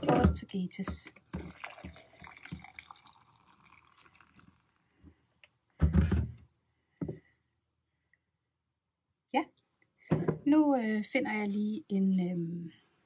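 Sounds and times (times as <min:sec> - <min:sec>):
water pouring into glass jar: 0:00.9 - 0:05.3.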